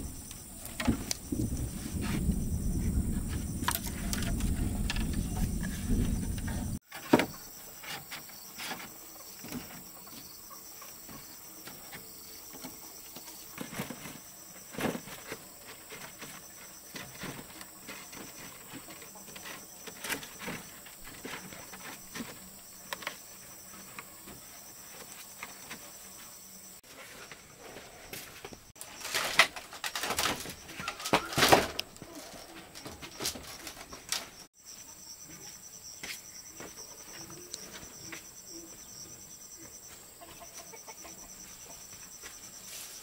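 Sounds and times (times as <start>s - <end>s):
insect chirring: 0.0s - 27.4s.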